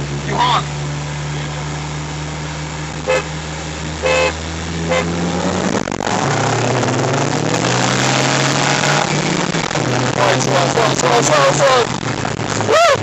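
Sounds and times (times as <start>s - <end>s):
car engine idling and accelerating: 0.0s - 13.0s
car horn honks: 3.0s - 3.4s, 4.0s - 5.2s.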